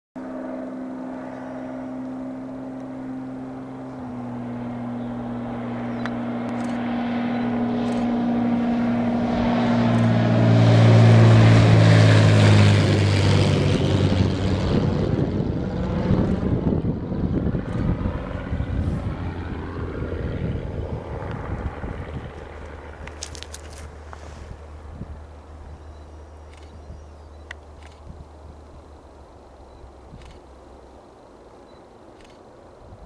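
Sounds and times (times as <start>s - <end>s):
propeller plane engine droning: 0.2s - 33.0s
rushing air: 6.6s - 22.4s, 23.8s - 25.4s.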